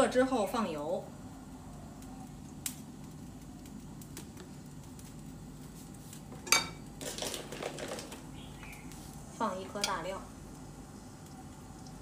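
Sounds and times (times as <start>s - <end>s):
steady low hum: 0.0s - 7.1s, 8.0s - 12.0s
kitchenware clinking: 6.4s - 8.1s
kitchenware clattering: 6.4s - 8.2s.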